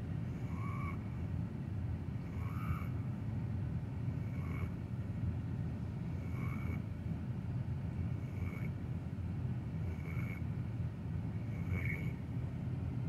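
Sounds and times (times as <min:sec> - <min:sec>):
dog snoring: 0:08.2 - 0:08.7, 0:09.9 - 0:10.4.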